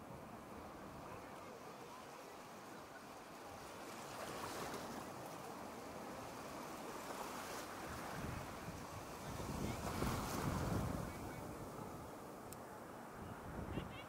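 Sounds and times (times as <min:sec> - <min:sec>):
surf washing on beach: 0:00.0 - 0:14.0
wind on microphone: 0:07.8 - 0:12.2, 0:13.1 - 0:14.0.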